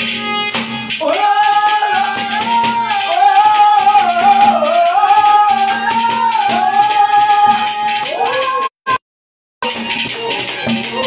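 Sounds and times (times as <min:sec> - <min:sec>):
hand drum: 0:00.0 - 0:08.7, 0:09.6 - 0:11.0
hand rattle shaken: 0:00.9 - 0:08.7.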